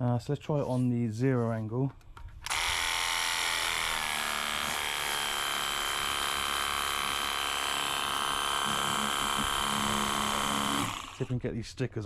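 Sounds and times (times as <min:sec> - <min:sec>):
pressure washer pump whining: 0:02.4 - 0:11.3.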